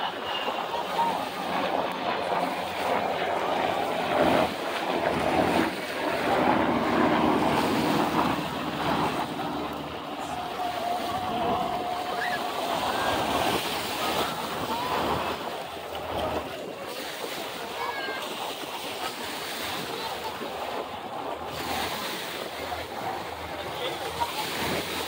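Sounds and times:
wind on microphone: 0:00.0 - 0:18.1
faint voices: 0:00.0 - 0:25.0
small surf waves washing: 0:00.0 - 0:25.0.

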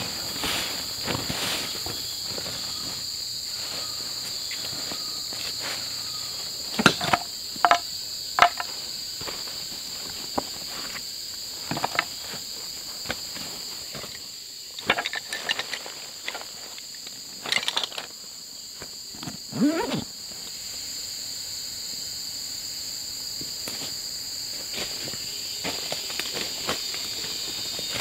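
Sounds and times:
insects buzzing: 0:00.0 - 0:28.0
crackling and knocking: 0:06.8 - 0:07.8, 0:08.4 - 0:08.7.

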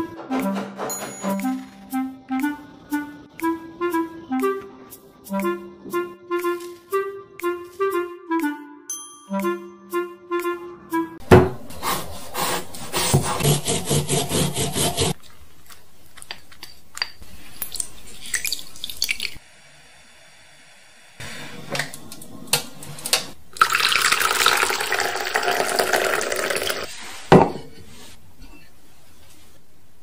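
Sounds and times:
milk pouring into a bowl: 0:23.6 - 0:26.9.

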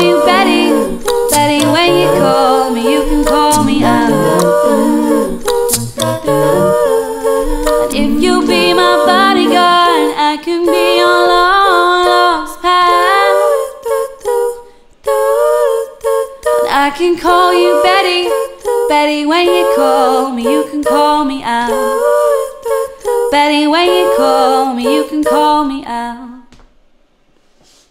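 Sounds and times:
woman singing layered harmonies: 0:00.0 - 0:26.6.

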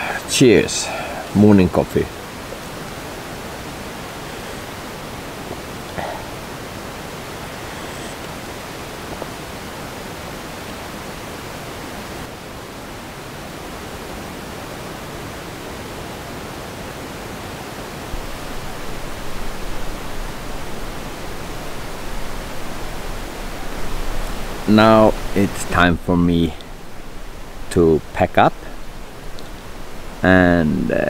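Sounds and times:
steady rushing noise: 0:00.0 - 0:31.0
low uneven rumble: 0:18.1 - 0:31.0.

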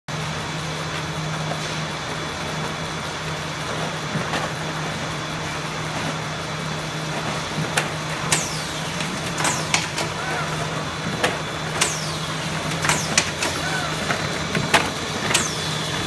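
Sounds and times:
conveyor noise: 0:00.1 - 0:16.0
machine motor hum: 0:00.1 - 0:16.0.

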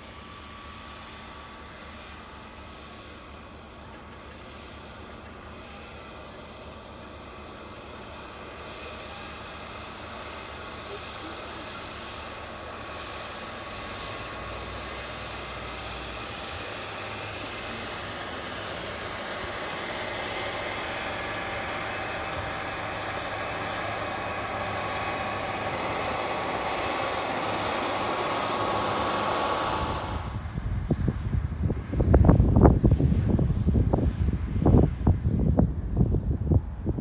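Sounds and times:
tractor diesel engine under load: 0:00.0 - 0:30.6
wind buffeting microphone: 0:20.5 - 0:37.0.

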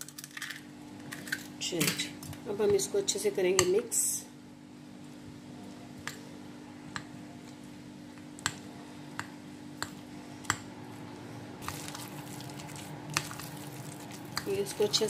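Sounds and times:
steady low hum: 0:00.0 - 0:15.0
hand squishing wet batter: 0:11.6 - 0:14.6.

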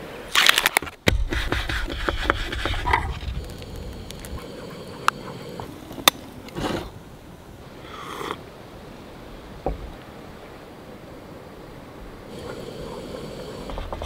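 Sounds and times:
faint steady hiss: 0:00.0 - 0:14.0
breathy rustles: 0:12.3 - 0:14.0.

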